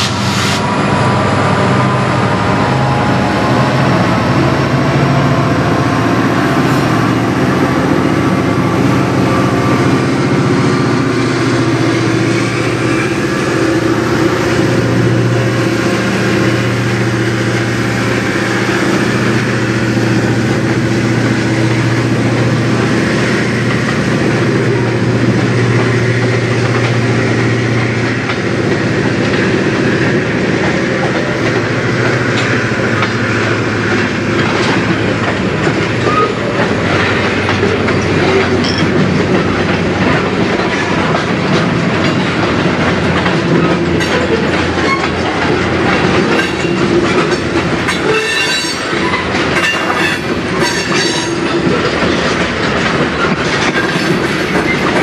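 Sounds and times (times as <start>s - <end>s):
locomotive engine drone: 0.0s - 55.0s
train wheels clacking over rail joints: 0.0s - 55.0s
high-pitched wheel squeals: 48.0s - 51.3s.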